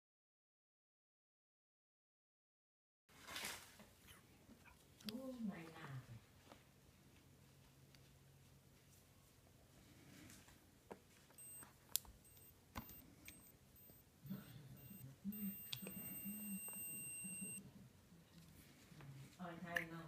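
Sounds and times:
thermometer beeping: 11.4 - 17.6.

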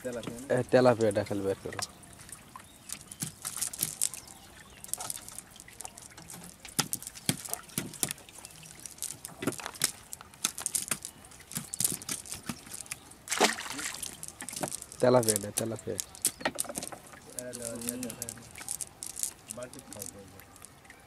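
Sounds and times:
water trickling: 0.0 - 21.0
wet net rustling: 2.4 - 20.8.

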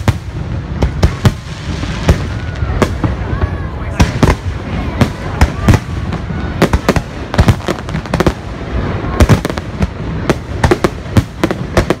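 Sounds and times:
fireworks bangs: 0.0 - 12.0.

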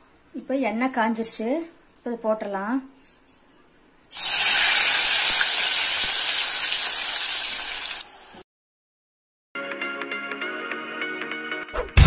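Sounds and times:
food sizzling in hot oil: 4.1 - 8.4.

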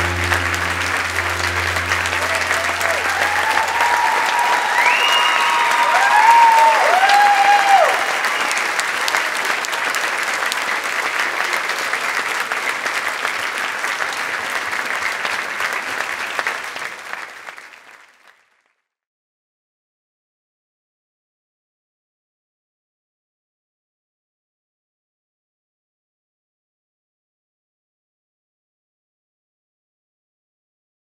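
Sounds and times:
high calls over clapping: 0.0 - 9.9
audience applauding: 0.0 - 18.6.

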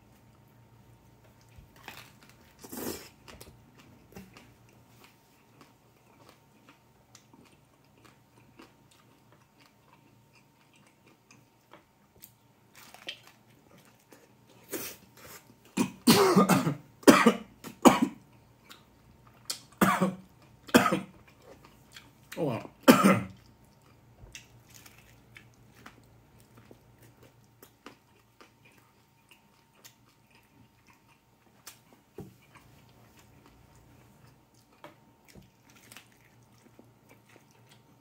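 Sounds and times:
biting into tortilla: 1.7 - 3.5
chewing with wet mouth clicks: 3.3 - 12.4, 23.3 - 38.0
person coughing: 15.8 - 18.2, 19.8 - 21.1, 22.8 - 23.4.

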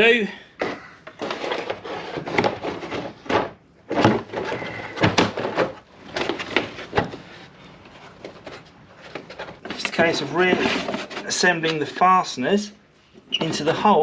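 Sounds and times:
plastic liner scraping and knocking: 0.6 - 11.4.

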